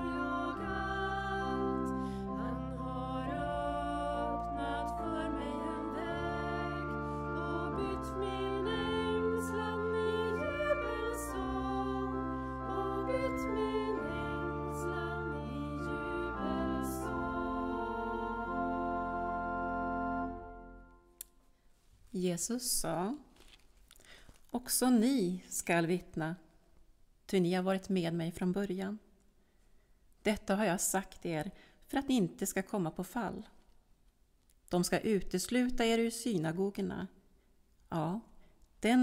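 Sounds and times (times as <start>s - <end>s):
hymn singing: 0.0s - 21.1s
organ chords: 0.0s - 21.2s.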